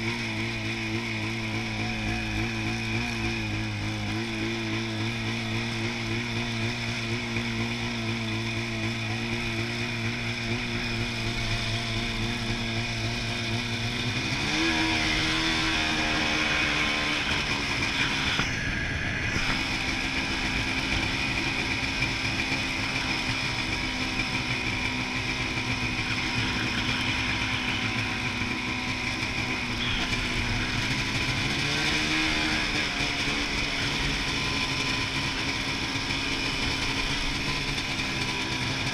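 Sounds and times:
snowmobile engine revving: 0.0s - 38.9s.

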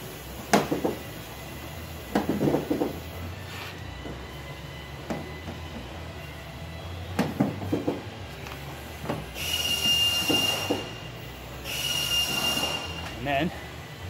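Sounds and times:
air hissing with high whistle: 9.3s - 13.6s.

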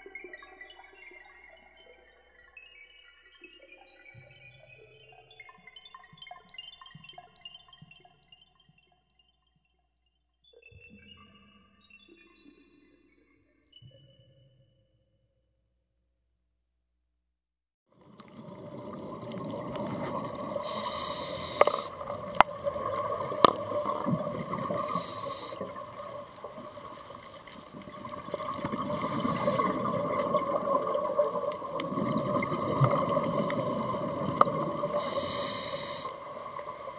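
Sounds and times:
steady water: 17.9s - 36.9s
sharp clicks: 20.7s - 22.6s.

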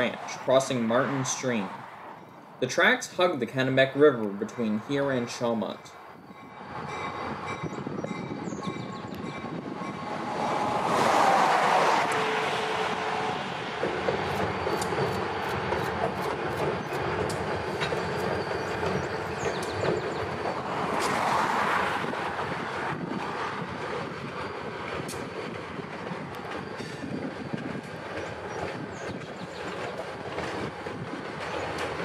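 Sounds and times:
diesel freight train passing: 0.0s - 32.0s
wheels clicking over rail joints: 13.8s - 32.0s.

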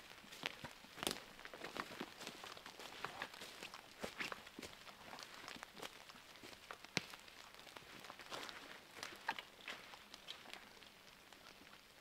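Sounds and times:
footsteps on leaf litter: 0.4s - 10.0s.

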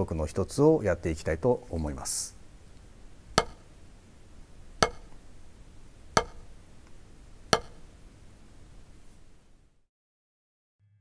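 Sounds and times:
drumstick tapping practice pad: 3.3s - 3.8s, 4.8s - 5.2s, 6.2s - 6.6s, 7.5s - 7.9s.

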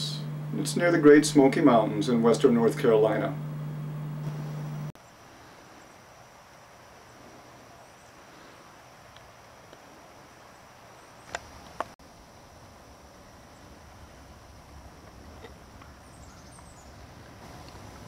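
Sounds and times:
steady high whine: 0.0s - 5.0s.

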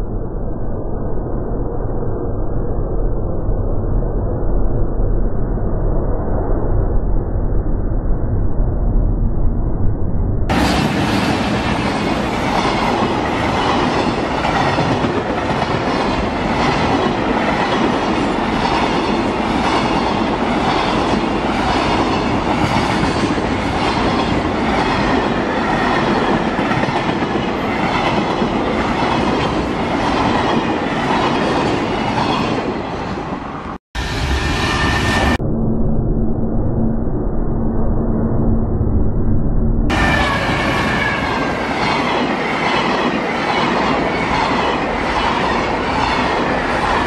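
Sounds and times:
freight train rushing rumble: 10.5s - 35.4s, 39.9s - 47.0s
wheels clickety-clack over rail joints: 10.6s - 33.0s, 41.0s - 47.0s.

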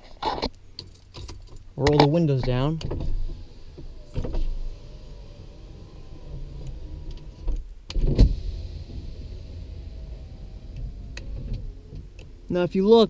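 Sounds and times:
power window motor whining: 2.9s - 12.6s
thump: 7.4s - 8.4s.

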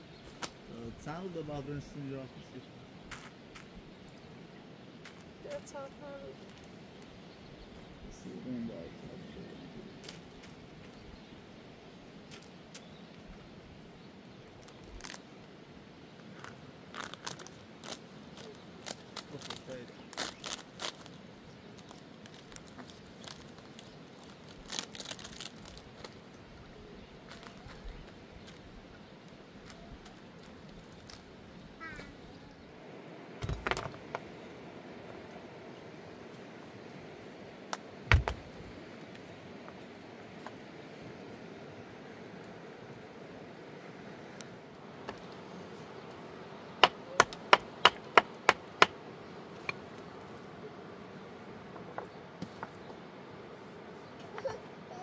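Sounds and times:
flatbread rustling and crackling: 16.2s - 26.3s
sharp knocks on stone: 38.1s - 38.4s.

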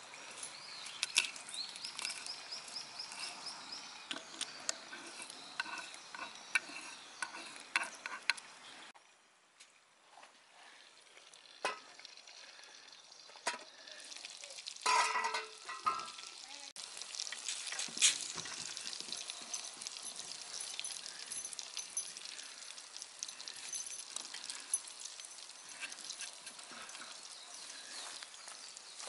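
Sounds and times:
food sizzling in a skillet: 11.5s - 21.3s.

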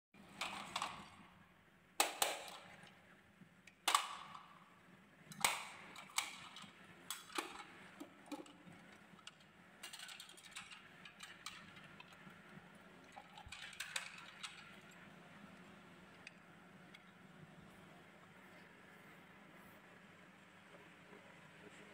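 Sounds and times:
toy truck clacks: 5.3s - 12.4s, 13.4s - 14.8s
toy truck clicking: 5.3s - 12.6s, 13.2s - 14.8s.

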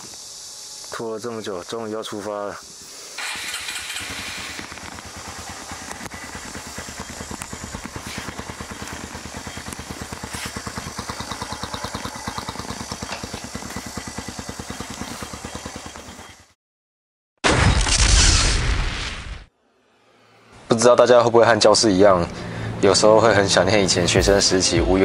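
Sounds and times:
motorcycle engine idling: 3.2s - 16.6s.

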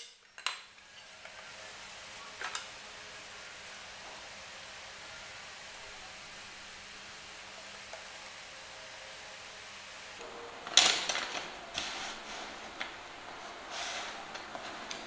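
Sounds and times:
wooden strips clattering: 10.4s - 15.0s.

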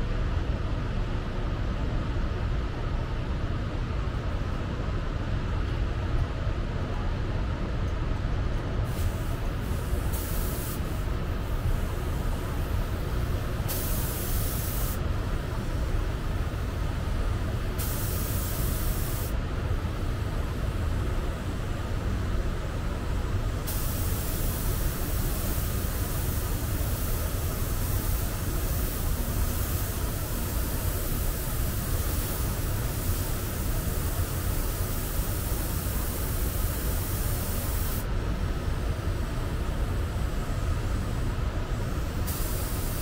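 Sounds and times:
compressed air gun hissing: 8.9s - 16.0s, 17.7s - 19.4s, 23.6s - 38.1s, 41.9s - 43.0s.

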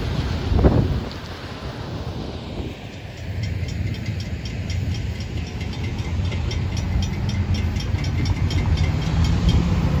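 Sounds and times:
cars rumbling across tracks: 0.0s - 10.0s
crossing warning bell ringing: 2.6s - 10.0s.

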